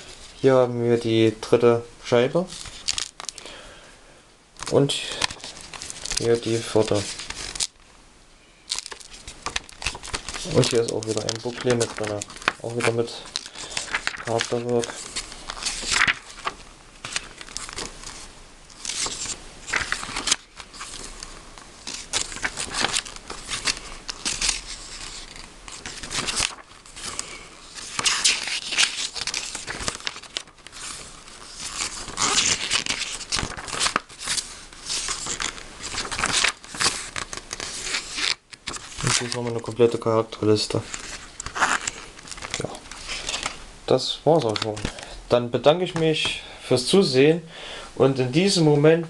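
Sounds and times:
paper pages rustling: 0:02.5 - 0:03.5, 0:04.6 - 0:07.8, 0:08.7 - 0:43.6, 0:44.3 - 0:45.1.

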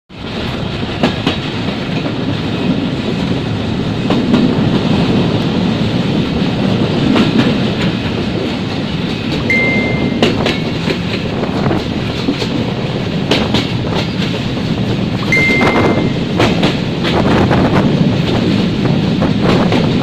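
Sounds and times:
train wheels rumbling on rails: 0:00.1 - 0:20.0
wheels clicking over rail joints: 0:00.2 - 0:15.3, 0:16.0 - 0:20.0.

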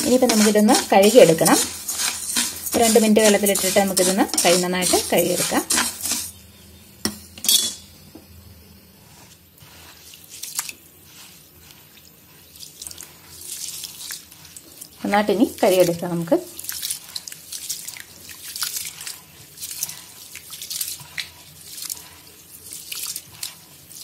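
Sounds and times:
person talking: 0:00.0 - 0:01.8, 0:02.7 - 0:05.8, 0:15.0 - 0:16.4
hands swishing grains in water: 0:00.0 - 0:06.3, 0:09.1 - 0:15.9, 0:16.5 - 0:24.0
grains scraping in a pan: 0:00.0 - 0:06.4, 0:09.0 - 0:24.0.

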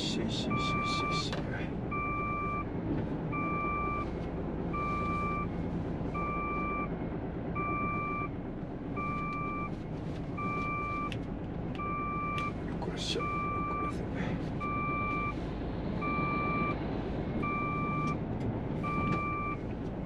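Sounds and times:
diesel engine running: 0:00.0 - 0:20.0
reversing alarm beeps: 0:00.5 - 0:01.3, 0:01.9 - 0:02.7, 0:03.4 - 0:04.1, 0:06.2 - 0:06.9, 0:07.6 - 0:08.3, 0:10.4 - 0:11.1, 0:11.8 - 0:12.6, 0:13.2 - 0:13.9, 0:14.6 - 0:15.4, 0:16.0 - 0:16.8, 0:17.4 - 0:18.2, 0:18.8 - 0:19.6.

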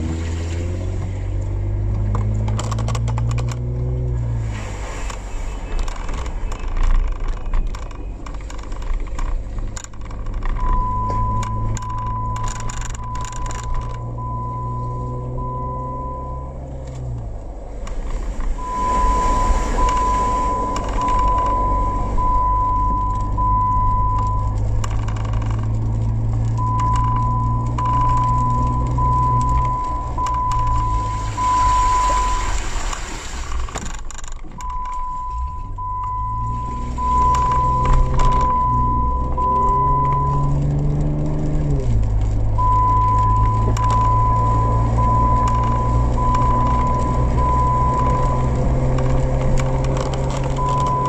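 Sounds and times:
car engine running: 0:00.0 - 0:51.0
road noise on wet road: 0:00.0 - 0:51.0
dashboard warning chime beeping: 0:10.6 - 0:17.1, 0:18.6 - 0:24.9, 0:26.5 - 0:32.6, 0:34.5 - 0:40.7, 0:42.6 - 0:51.0.

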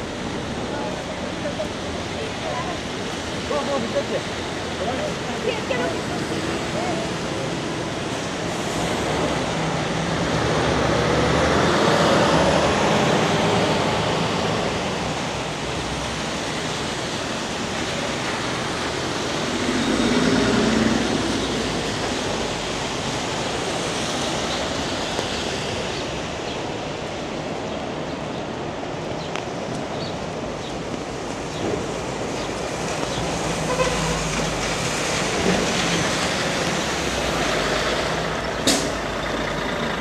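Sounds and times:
rain hiss: 0:00.0 - 0:40.0
traffic passing: 0:00.0 - 0:40.0
tyres on wet pavement: 0:00.0 - 0:40.0
city bus humming past: 0:04.2 - 0:28.4, 0:30.0 - 0:40.0.

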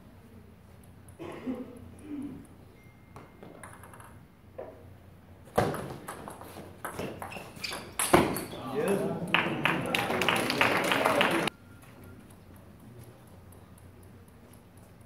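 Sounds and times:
table tennis ball clicking off paddles: 0:03.4 - 0:04.2.

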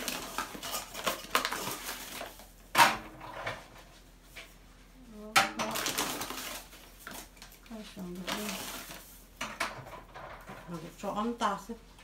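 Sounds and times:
paper bag rustling: 0:05.7 - 0:09.3.

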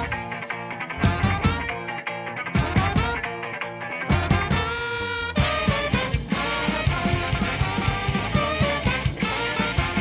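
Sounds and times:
upbeat music with steady beat: 0:05.4 - 0:10.0.

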